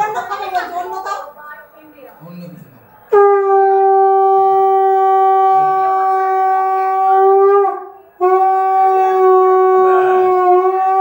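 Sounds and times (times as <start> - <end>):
conch shell blasts: 3.1 - 11.0.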